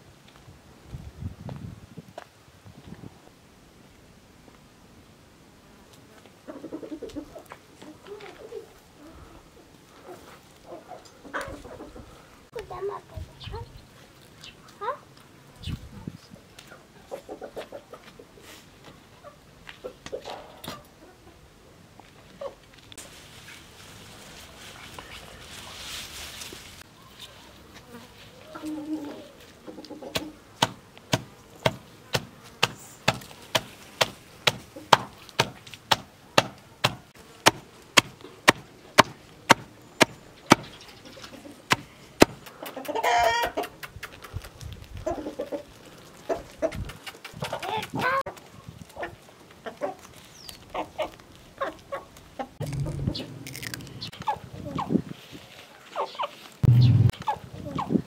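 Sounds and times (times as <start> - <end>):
chickens clucking: 6.4 - 15.0, 15.6 - 21.6, 22.2 - 22.7, 28.3 - 33.7, 34.4 - 35.5, 38.2 - 55.0, 55.8 - 58.0
knife chopping on wooden block: 30.6 - 39.6.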